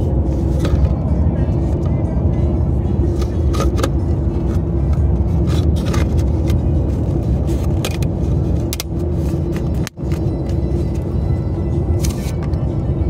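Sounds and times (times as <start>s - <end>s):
car cabin road and engine rumble: 0.0s - 13.0s.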